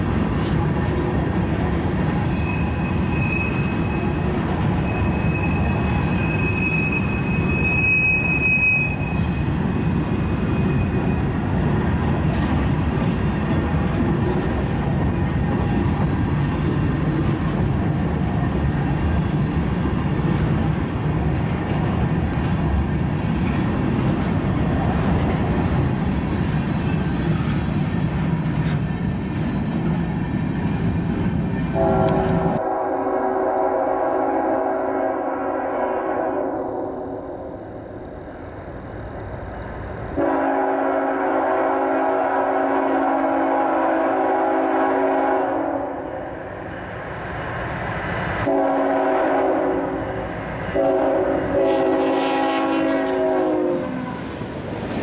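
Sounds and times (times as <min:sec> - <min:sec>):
steel wheels rumbling on rail: 0:00.0 - 0:55.0
high wheel squeal: 0:02.2 - 0:11.4, 0:26.7 - 0:34.9.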